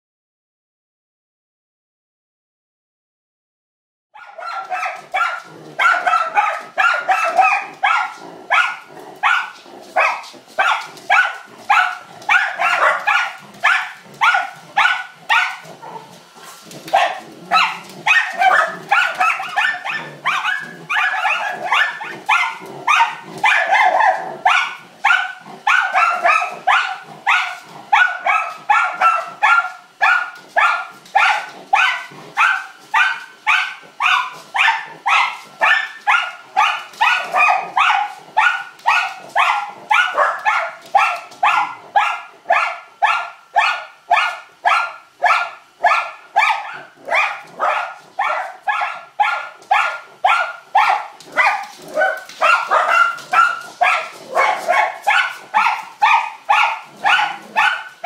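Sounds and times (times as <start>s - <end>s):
dogs barking rapidly: 4.2s - 58.0s.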